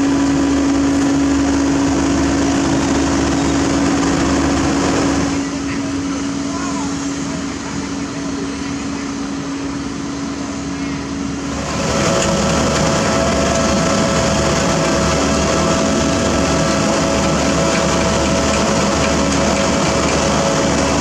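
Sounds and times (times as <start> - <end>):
diesel asphalt paver running: 0.0 - 21.0
steady tones: 9.8 - 21.0
dump truck tipping: 11.6 - 21.0.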